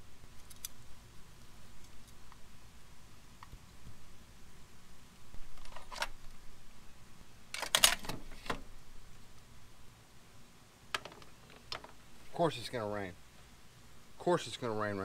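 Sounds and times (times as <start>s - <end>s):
metal parts clinking: 7.6s - 8.2s.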